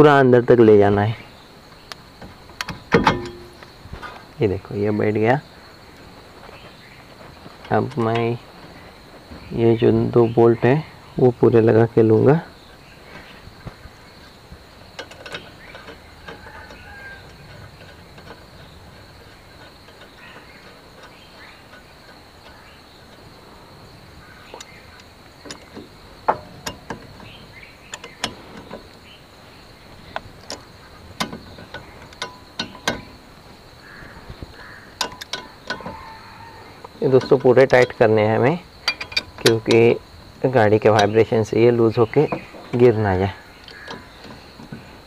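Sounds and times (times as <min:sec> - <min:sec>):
wrench clicking on bolts: 0:14.9 - 0:23.3, 0:24.6 - 0:29.0, 0:30.0 - 0:34.0, 0:34.6 - 0:40.1.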